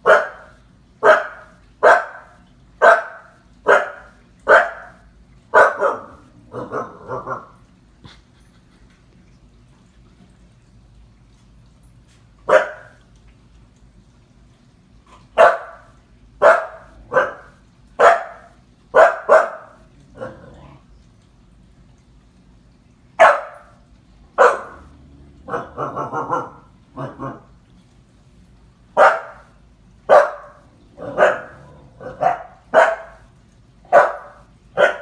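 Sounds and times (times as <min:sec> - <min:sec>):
puppy barking: 0:00.0 - 0:07.5, 0:12.5 - 0:13.0, 0:15.4 - 0:20.4, 0:23.2 - 0:23.7, 0:24.4 - 0:24.9, 0:25.5 - 0:27.4, 0:29.0 - 0:29.5, 0:30.1 - 0:33.3, 0:33.9 - 0:35.0.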